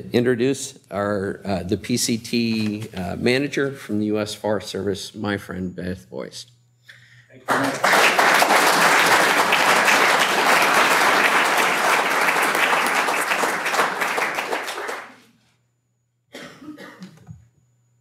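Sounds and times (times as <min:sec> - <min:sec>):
audience applauding: 0:07.5 - 0:15.3.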